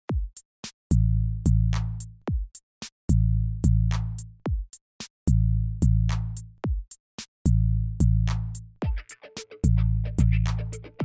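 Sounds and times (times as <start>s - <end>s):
deep kick drums: 0.1s - 1.7s, 2.3s - 2.5s, 4.5s - 4.7s, 6.6s - 9.0s
low held bass: 9.6s - 11.0s.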